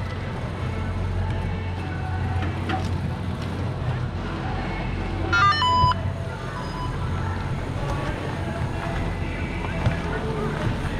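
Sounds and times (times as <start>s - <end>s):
bike rumbling on rough trail: 0.0s - 5.3s, 5.9s - 10.9s
high squeal: 5.4s - 7.1s.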